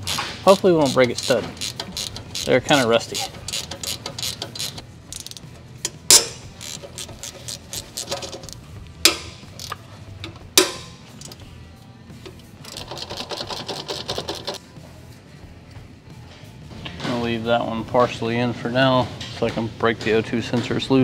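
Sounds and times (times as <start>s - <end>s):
ratchet clicking: 0.0s - 11.4s.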